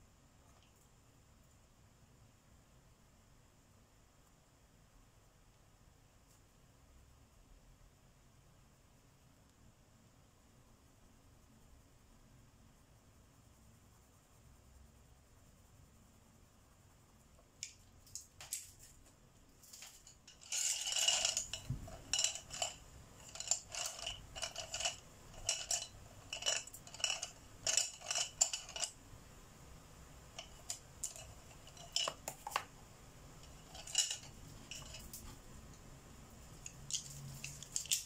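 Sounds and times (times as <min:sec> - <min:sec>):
pencils clinking in ceramic pot: 0:19.6 - 0:29.0, 0:30.3 - 0:32.7, 0:33.4 - 0:35.4, 0:36.6 - 0:38.0.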